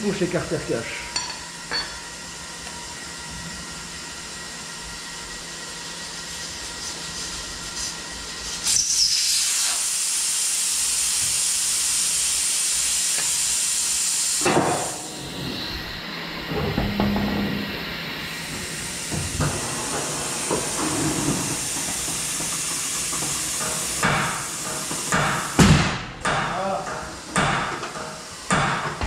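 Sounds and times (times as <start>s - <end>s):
air hissing out of a tyre: 6.3s - 15.2s, 19.7s - 25.6s.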